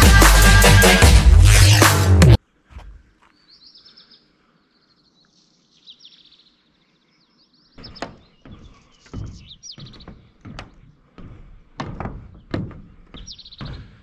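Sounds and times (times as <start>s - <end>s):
birds chirping: 2.6s - 14.0s
rumbling and thumps: 7.8s - 14.0s
sharp knocks: 7.8s - 14.0s.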